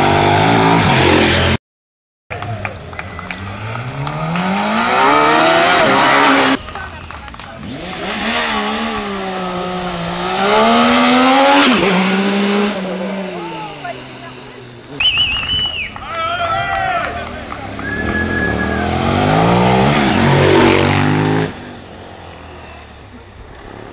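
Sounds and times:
racing motorcycle accelerating: 0.0s - 1.6s, 2.3s - 23.9s
racing motorcycle at high revs: 3.0s - 15.0s, 17.2s - 23.9s.

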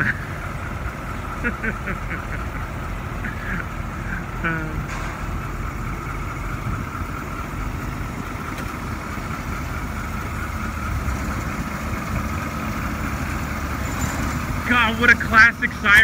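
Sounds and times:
fire truck diesel engine idling: 0.0s - 16.0s.

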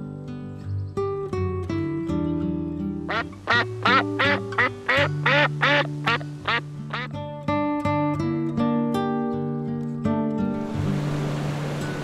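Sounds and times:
guitar music: 0.0s - 12.0s
duck quacking: 3.1s - 7.1s.

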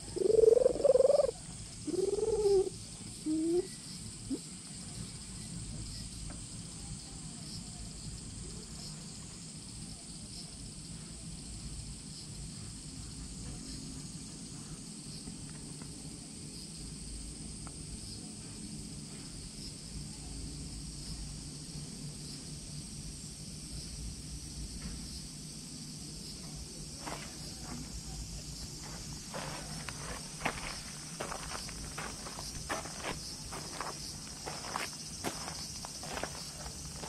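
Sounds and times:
high-pitched insect chorus: 0.0s - 37.0s.

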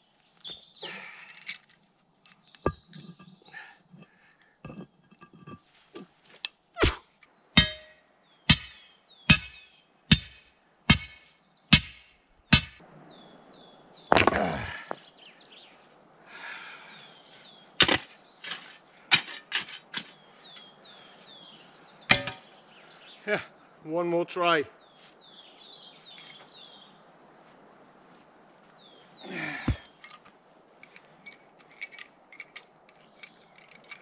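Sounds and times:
steel tool striking rock: 2.5s - 3.4s, 7.6s - 12.8s, 17.8s - 20.6s, 22.1s - 22.5s.

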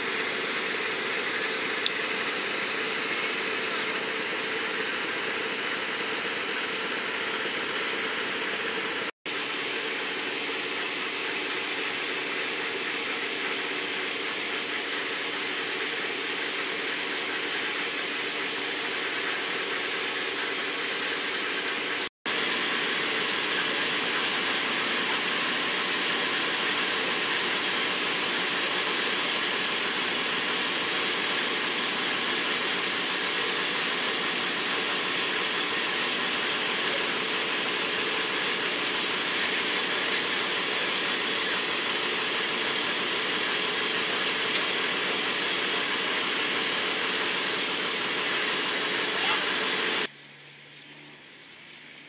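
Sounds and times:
diesel locomotive idling: 0.0s - 50.1s.

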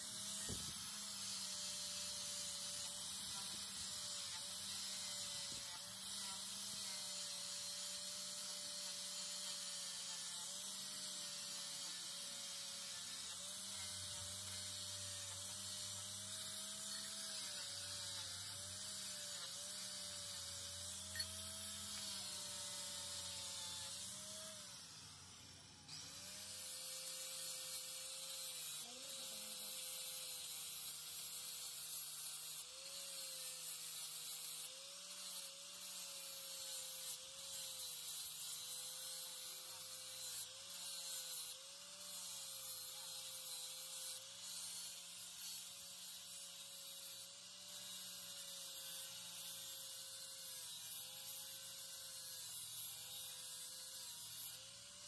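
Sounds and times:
angle grinder motor whine: 0.0s - 31.0s
grinding hiss: 0.0s - 55.0s.

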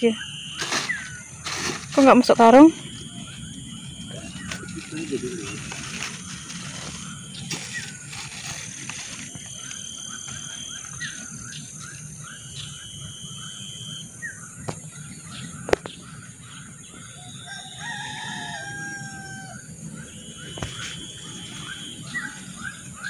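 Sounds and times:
rooster crowing: 17.2s - 19.8s.

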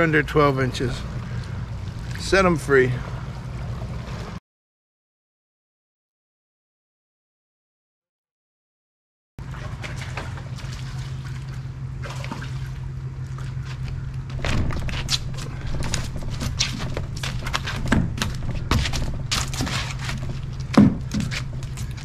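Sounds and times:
steady low hum: 0.0s - 4.4s, 9.4s - 22.0s
water splashing and trickling: 0.0s - 4.4s, 9.4s - 22.0s
sharp knocks: 14.4s - 21.6s.

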